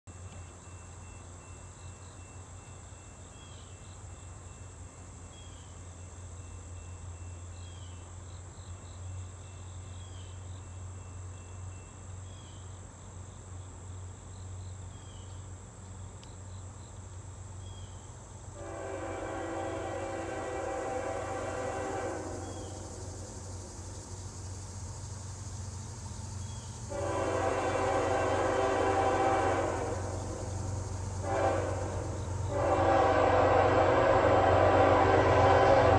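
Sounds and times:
insects buzzing: 0.6 - 35.9
distant locomotive air horn: 18.6 - 23.2, 26.8 - 35.9.

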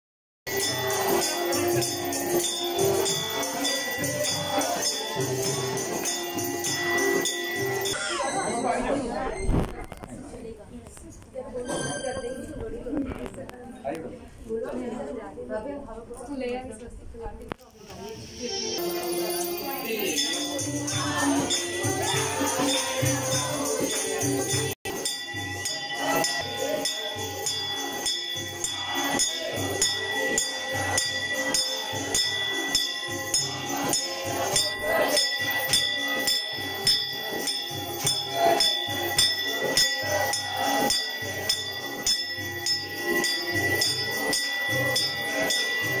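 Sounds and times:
devotional singing: 0.5 - 7.9, 18.0 - 46.0
jingling percussion beat: 0.5 - 8.8, 18.1 - 46.0.

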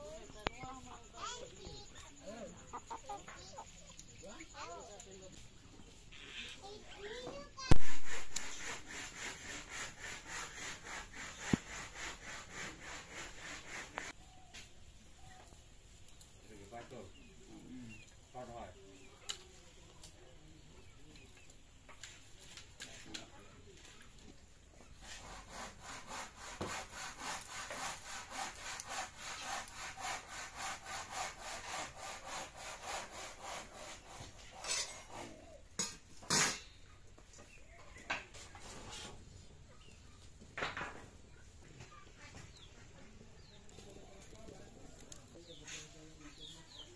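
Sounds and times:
twine rubbing around sticks: 0.0 - 46.9
wood scraping: 7.3 - 14.2, 23.8 - 39.4
hand saw cutting wood: 7.6 - 14.2, 25.0 - 36.6.

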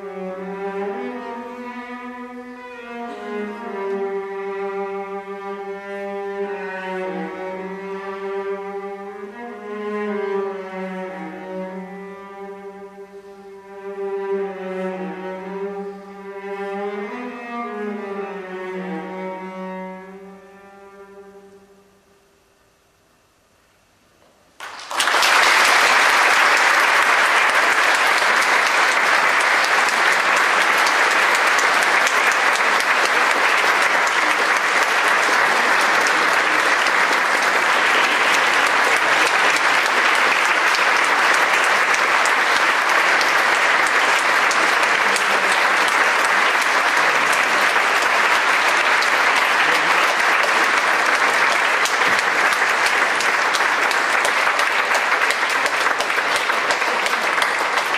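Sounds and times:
audience applauding: 24.6 - 57.9.

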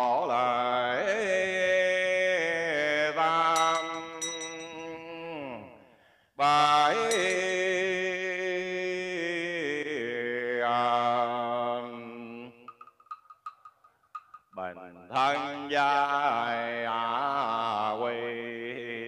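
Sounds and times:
man chanting: 0.0 - 5.8, 6.4 - 12.7, 14.6 - 19.0
small bell struck: 3.6 - 5.1, 7.0 - 7.7.

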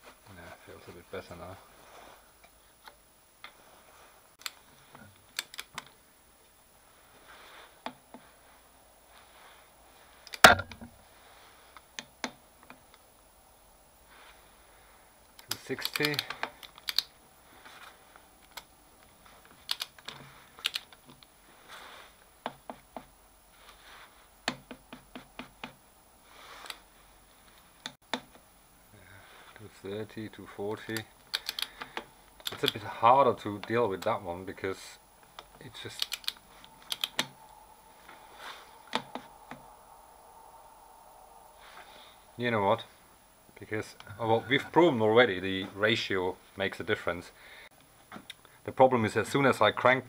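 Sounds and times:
torque wrench clicking: 15.4 - 17.1, 31.2 - 32.7, 35.4 - 37.3
soft metal scraping: 33.0 - 44.9.

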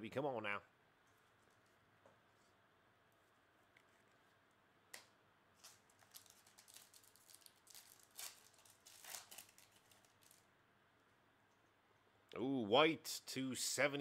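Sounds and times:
foil wrapper crinkling and tearing: 5.6 - 10.5.

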